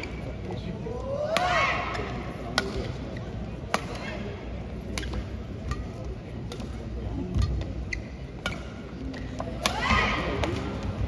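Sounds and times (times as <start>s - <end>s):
racket striking shuttlecock: 1.3s - 3.0s
shoe squeaks on court: 7.8s - 9.3s.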